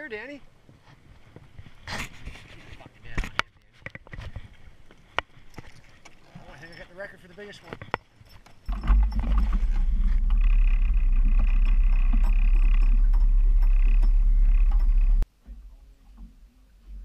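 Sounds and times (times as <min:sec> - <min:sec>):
outboard motor running: 0:08.7 - 0:15.2
wind buffeting microphone: 0:08.7 - 0:15.2.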